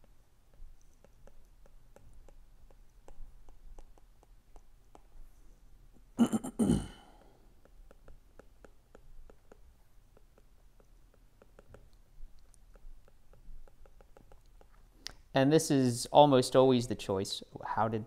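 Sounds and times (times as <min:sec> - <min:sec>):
throaty vocal sound: 0:06.2 - 0:07.2
stylus tapping on glass screen: 0:12.7 - 0:14.8.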